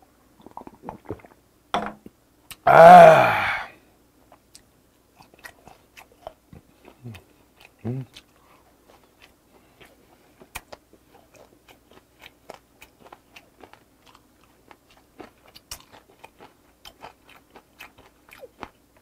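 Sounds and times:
close chewing with wet clicks: 0:04.3 - 0:19.0.

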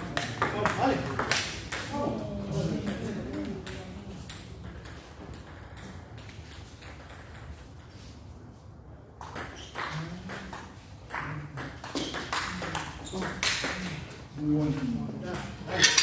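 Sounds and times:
table tennis balls clicking: 0:00.0 - 0:02.0, 0:02.8 - 0:08.2, 0:09.1 - 0:14.3.

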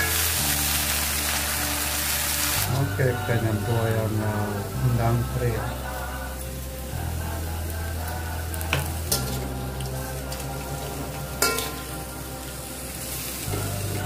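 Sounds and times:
greens sizzling in oil: 0:00.0 - 0:14.0
metal spatula striking wok: 0:08.7 - 0:09.4, 0:11.4 - 0:11.9.

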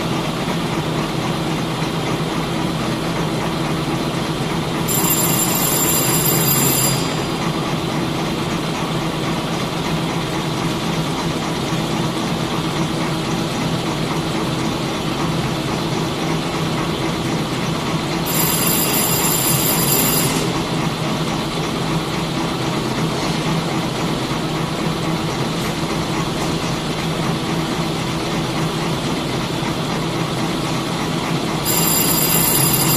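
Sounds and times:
high-pitched ringing tone: 0:04.8 - 0:08.4, 0:18.2 - 0:20.8, 0:31.6 - 0:32.9.

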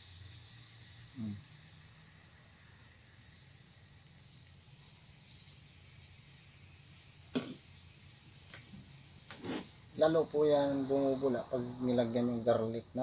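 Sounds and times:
soda pouring from bottle: 0:00.0 - 0:12.3
soda fizzing: 0:00.0 - 0:13.0
short knock: 0:07.4 - 0:07.6.

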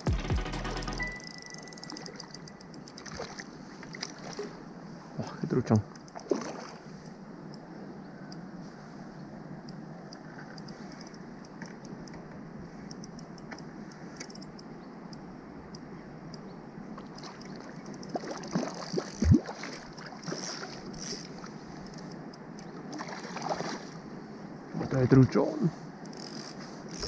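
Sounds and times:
water lapping around float tube: 0:03.0 - 0:07.1, 0:16.9 - 0:24.2
fish splashing: 0:17.0 - 0:21.4, 0:22.9 - 0:23.9.

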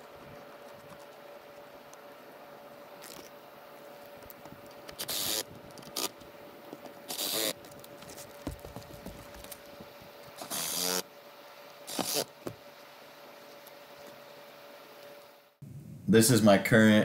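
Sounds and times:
cordless drill driving screws: 0:10.4 - 0:11.0.

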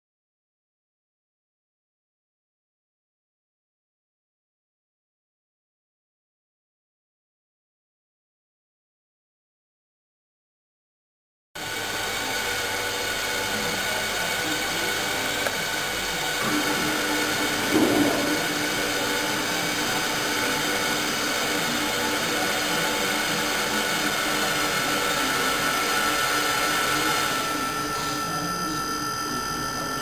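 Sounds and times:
servo motor whine: 0:11.6 - 0:30.0.

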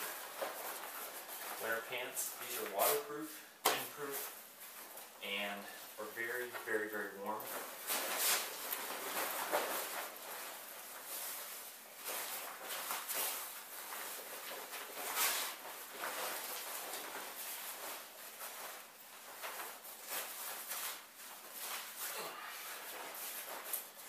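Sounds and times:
waterproof pants rustling: 0:00.0 - 0:05.2, 0:07.4 - 0:24.0.

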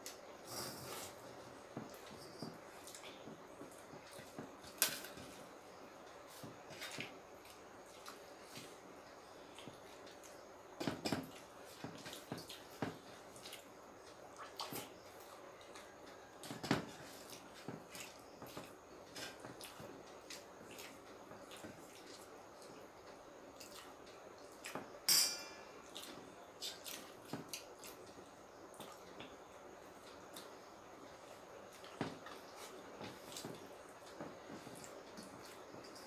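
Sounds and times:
dish clinking: 0:25.1 - 0:25.6.

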